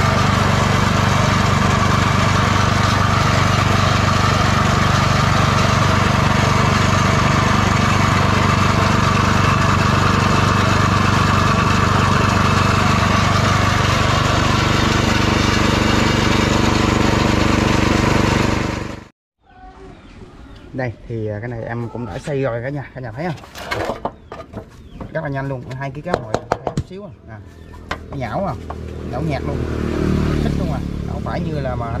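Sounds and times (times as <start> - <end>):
meat grinder mincing: 0.0 - 19.0
small gasoline engine running: 0.0 - 19.1, 28.7 - 32.0.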